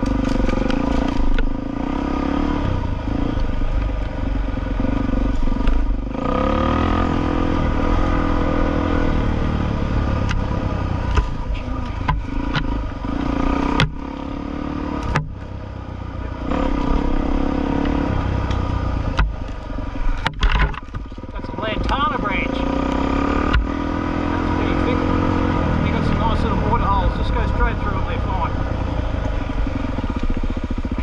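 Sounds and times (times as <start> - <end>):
motorcycle engine running: 0.0 - 31.0
motorcycle knocking and clattering: 10.2 - 14.1, 15.0 - 15.6, 17.8 - 22.1, 28.7 - 31.0.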